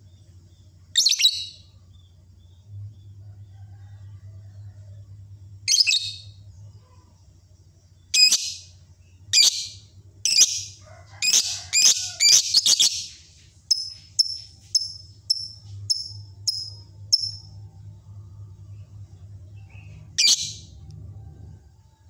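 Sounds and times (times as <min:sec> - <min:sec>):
faint low hum: 0:00.0 - 0:22.0
lovebird shrieking and chirping: 0:09.4 - 0:13.1, 0:20.2 - 0:20.6.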